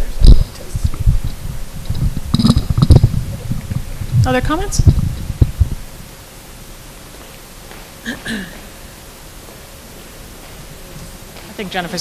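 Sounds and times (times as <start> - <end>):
microphone handling thumps: 0.0 - 6.1
sound system hiss: 0.0 - 12.0.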